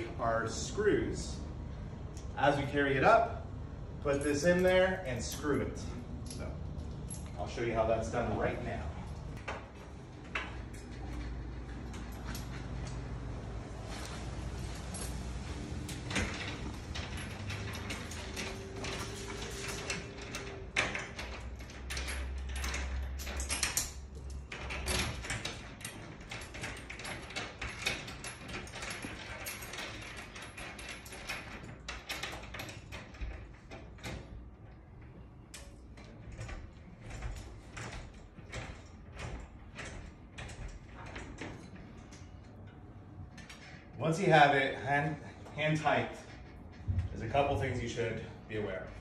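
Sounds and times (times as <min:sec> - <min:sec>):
metal clicks and knocks: 0:14.0 - 0:44.0.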